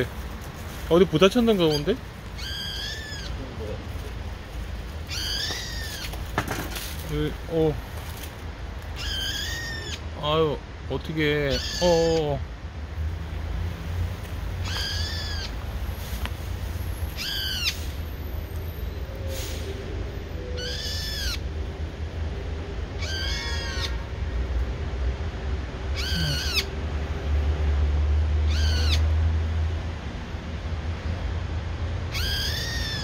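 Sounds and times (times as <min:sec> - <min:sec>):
bird calling: 0:01.5 - 0:03.6, 0:05.1 - 0:06.2, 0:08.9 - 0:10.1, 0:11.4 - 0:12.3, 0:14.6 - 0:15.6, 0:17.1 - 0:17.9, 0:20.4 - 0:21.5, 0:23.0 - 0:24.2, 0:26.0 - 0:26.8, 0:28.5 - 0:29.1, 0:32.1 - 0:33.0.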